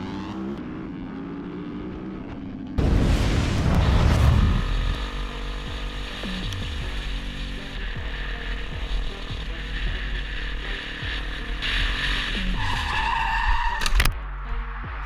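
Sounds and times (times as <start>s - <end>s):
motorcycle engine revving: 0.0s - 12.9s
motorcycle skidding on tarmac: 3.9s - 14.1s.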